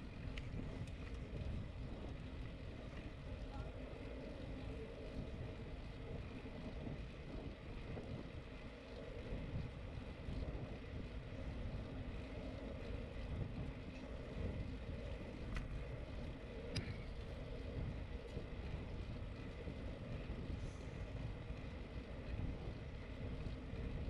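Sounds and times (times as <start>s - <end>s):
bicycle tyres rumbling on asphalt: 0.0s - 24.0s
wind buffeting microphone: 0.0s - 24.0s.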